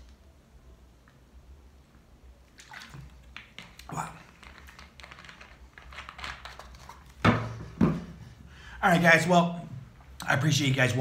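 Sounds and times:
plastic bottle clicks and rustles: 3.3 - 8.0.

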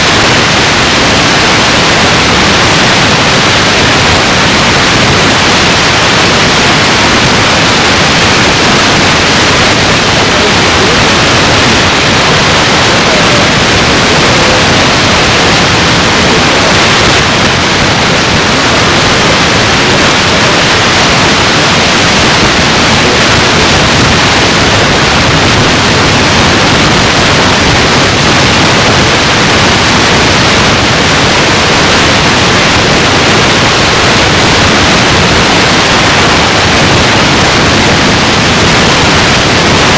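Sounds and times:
loud static hiss: 0.0 - 39.9.

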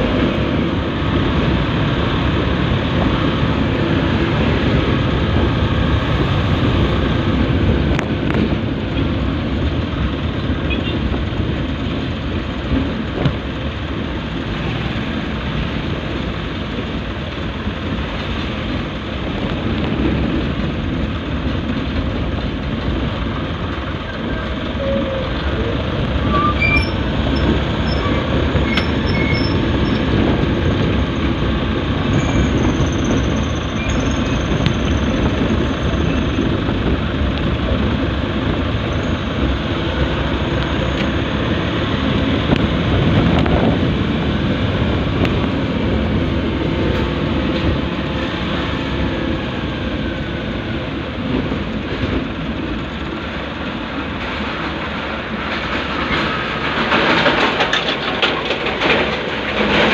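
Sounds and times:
vehicle engine and road noise: 0.0 - 59.9.

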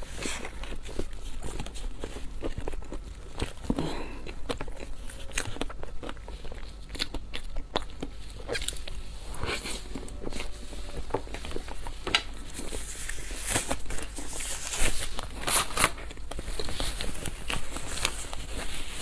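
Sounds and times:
plastic gloves crinkling: 0.0 - 19.0
paper tissue rustling: 8.8 - 19.0.

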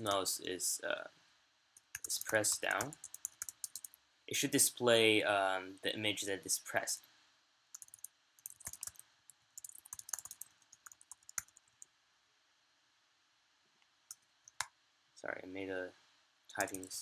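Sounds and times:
typing on a computer keyboard: 2.0 - 3.9, 7.8 - 9.0, 9.6 - 11.9.

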